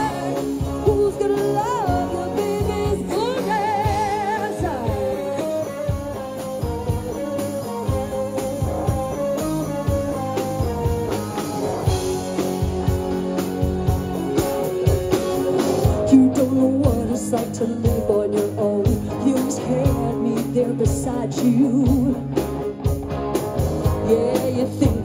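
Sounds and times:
woman singing: 0:00.0 - 0:05.8, 0:15.9 - 0:22.2, 0:24.0 - 0:25.0
rock band playing: 0:00.0 - 0:25.0.

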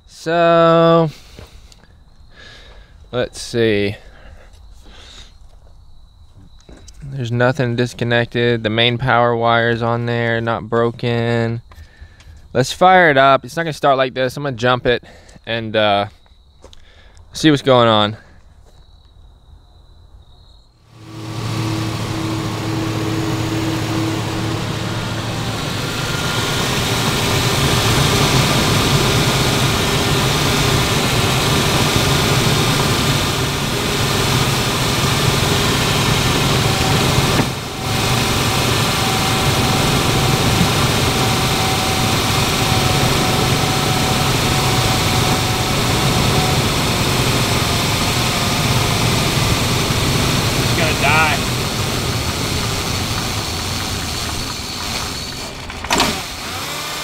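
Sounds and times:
car engine idling: 0:21.0 - 0:56.8.

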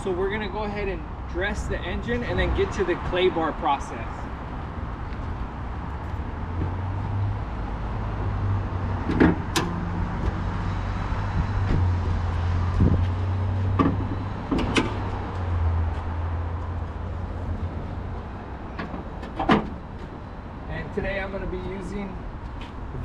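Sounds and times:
hood latch clicks and clunks: 0:18.8 - 0:19.8.

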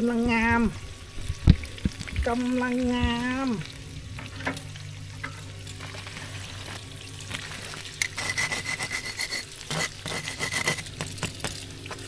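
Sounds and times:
metal tongs scraping crackling skin: 0:05.2 - 0:12.0.

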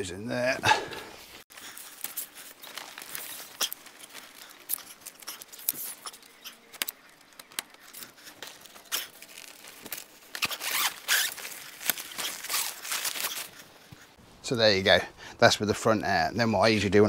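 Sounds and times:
fabric rustling: 0:01.2 - 0:14.2
zipper rasping: 0:07.7 - 0:13.6.

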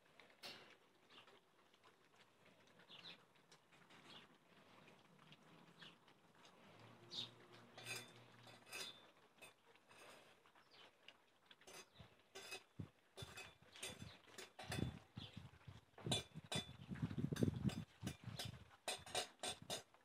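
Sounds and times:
metal bowls clinking and knocking: 0:07.2 - 0:10.3, 0:11.6 - 0:15.4, 0:16.0 - 0:20.0.

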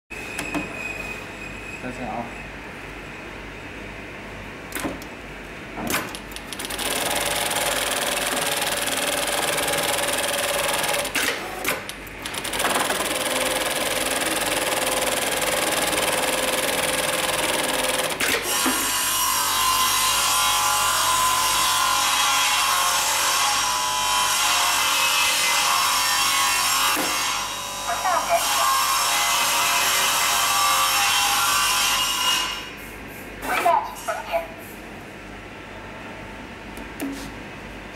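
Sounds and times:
sewing machine stitching: 0:06.6 - 0:18.4.

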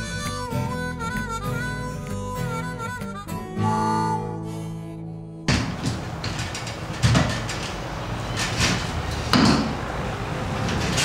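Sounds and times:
loud thumps: 0:05.5 - 0:09.9
steady background noise: 0:05.5 - 0:11.0.

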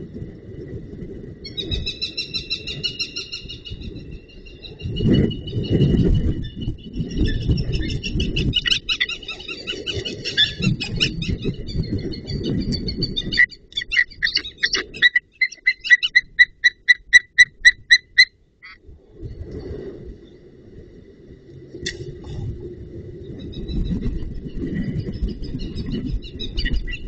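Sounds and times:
eagles yelping calls: 0:13.8 - 0:18.8
low rumbling noise: 0:18.4 - 0:27.0.

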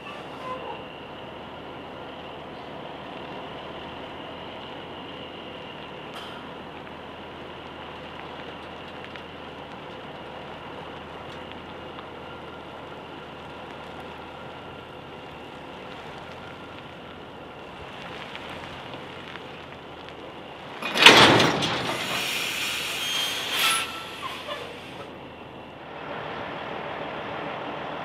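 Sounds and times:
truck reversing: 0:00.0 - 0:28.0
air brakes blast: 0:20.9 - 0:25.1.

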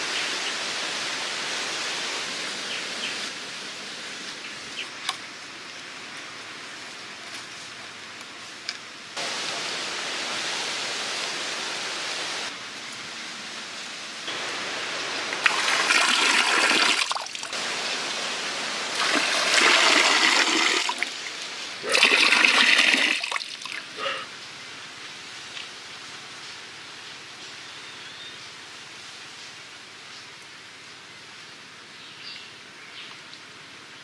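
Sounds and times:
water splashing into pond: 0:14.3 - 0:24.2.

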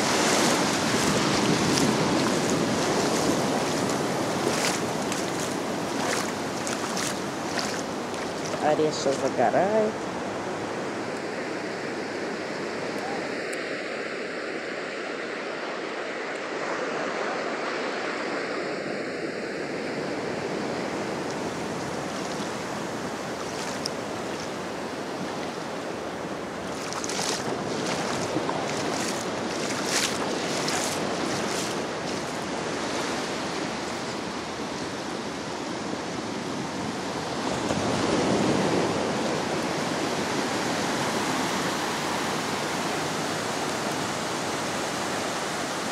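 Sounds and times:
wind buffeting microphone: 0:00.0 - 0:11.0, 0:20.0 - 0:35.5
waves breaking on beach: 0:00.0 - 0:45.9.

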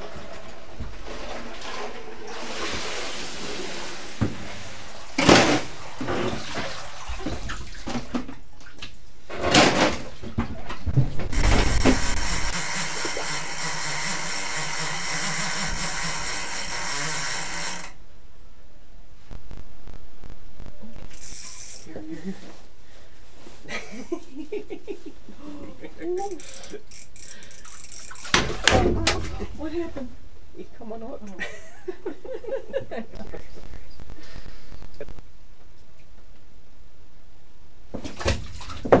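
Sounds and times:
water sloshing and splashing: 0:00.0 - 0:13.4, 0:27.6 - 0:29.9, 0:38.0 - 0:39.0.

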